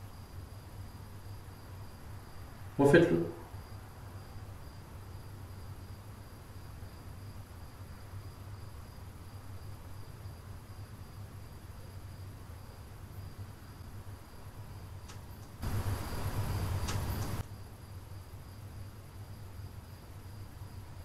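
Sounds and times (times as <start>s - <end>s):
faint click: 15.0s - 15.6s, 16.8s - 17.4s.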